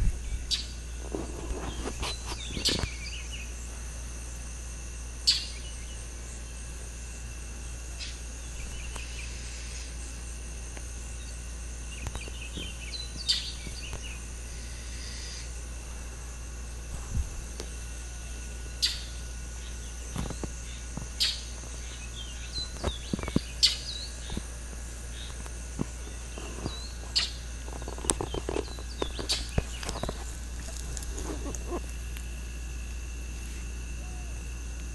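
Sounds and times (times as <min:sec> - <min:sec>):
insect chorus drone: 0:00.0 - 0:34.9
bird chirps: 0:05.3 - 0:06.0, 0:11.2 - 0:14.2, 0:18.8 - 0:24.3, 0:26.0 - 0:30.3.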